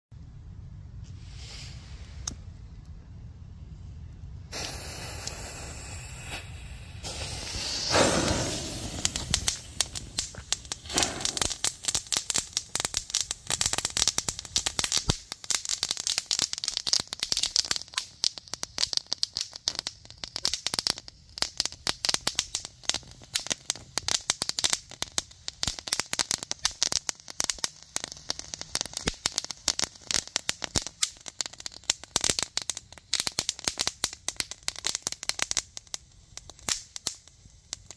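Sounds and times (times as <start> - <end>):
fuse hissing: 4.5 - 13.8
firework fountain rushing: 4.5 - 37.9
rapid crackling pops: 7.0 - 37.9.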